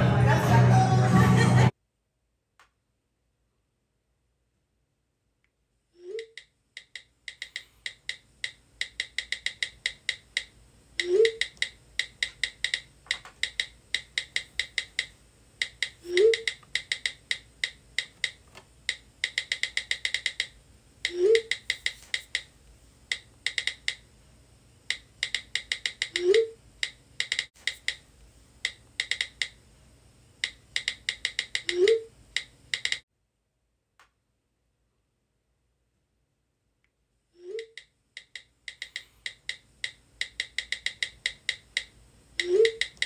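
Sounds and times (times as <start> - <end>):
phone keyboard typing clicks: 6.2 - 22.5, 23.1 - 24.0, 24.9 - 28.0, 28.6 - 29.6, 30.4 - 33.0, 37.6 - 43.0.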